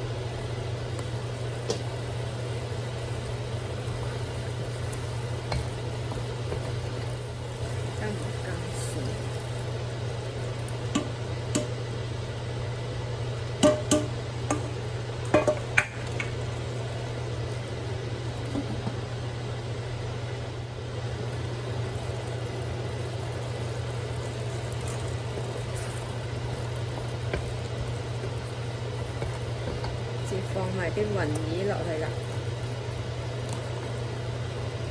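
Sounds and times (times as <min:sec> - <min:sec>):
steady low hum: 0:00.0 - 0:34.9
metal lid knocking on wok: 0:13.6 - 0:14.7.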